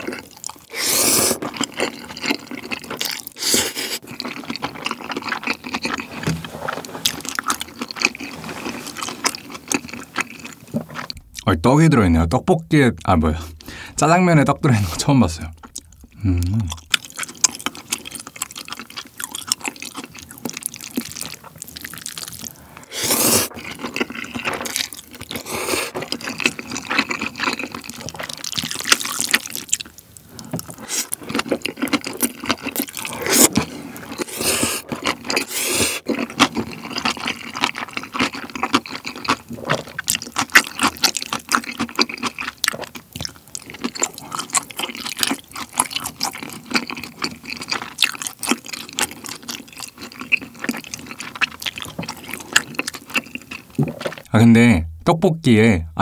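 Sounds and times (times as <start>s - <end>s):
wet sticky chewing: 0.0s - 11.5s, 14.9s - 54.3s
loud noodle slurps: 0.7s - 1.6s, 3.4s - 4.0s, 22.9s - 24.4s, 32.9s - 36.2s.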